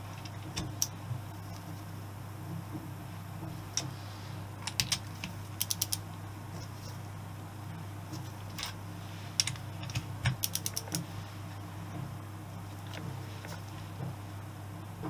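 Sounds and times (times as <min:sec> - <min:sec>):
steady low hum: 0:00.0 - 0:15.0
torque wrench ratchet clicking: 0:10.4 - 0:11.0.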